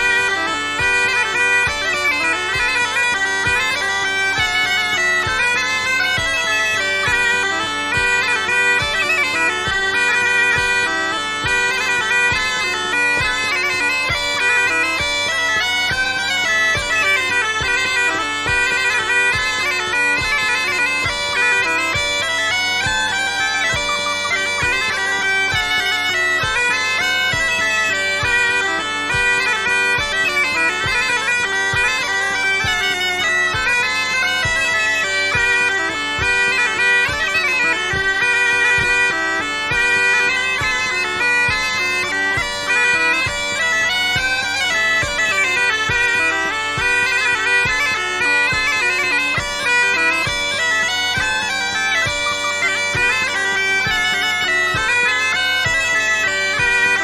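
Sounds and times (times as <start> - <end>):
bagpipe melody over drone: 0.0 - 57.0.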